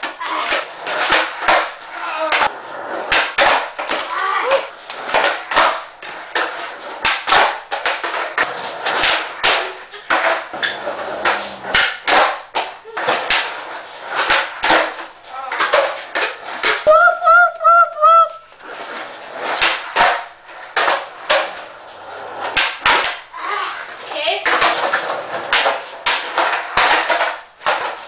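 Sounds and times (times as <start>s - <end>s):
skateboard cracks and slaps: 0.0s - 16.9s, 18.6s - 28.0s
person calling out: 16.9s - 18.5s.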